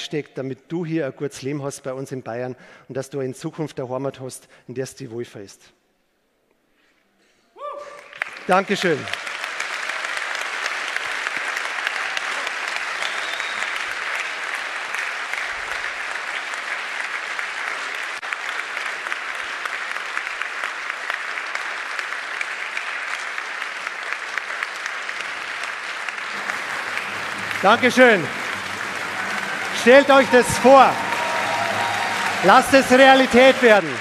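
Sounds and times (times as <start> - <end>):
audience applause: 8.0 - 34.0.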